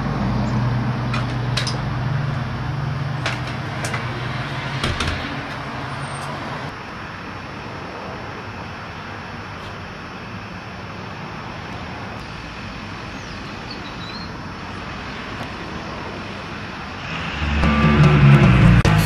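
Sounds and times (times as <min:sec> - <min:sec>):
outdoor background noise: 0:00.0 - 0:19.0
vehicle engine humming: 0:00.0 - 0:19.0
screen door clicks and knock: 0:03.2 - 0:06.4.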